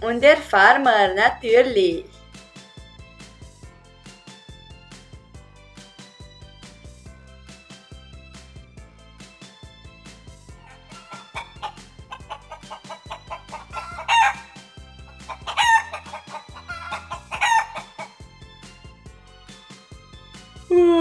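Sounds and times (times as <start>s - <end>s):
light background music: 0.0s - 21.0s
rooster clucking and calling: 10.7s - 18.2s.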